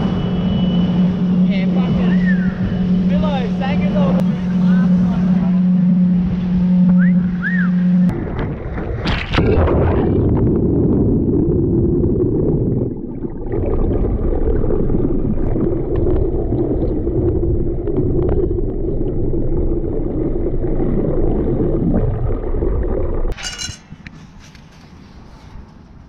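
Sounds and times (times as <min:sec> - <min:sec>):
muffled underwater rumble: 0:00.0 - 0:23.4
steady low hum: 0:00.0 - 0:25.2
metallic clatter: 0:23.4 - 0:24.1.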